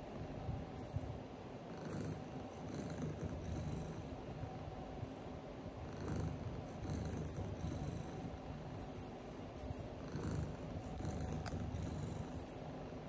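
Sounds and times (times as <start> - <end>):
high cat chirps: 0.8 - 1.0, 1.9 - 2.2, 7.1 - 7.5, 8.8 - 10.0, 12.3 - 12.6
cat purring: 1.6 - 4.7, 5.7 - 12.7.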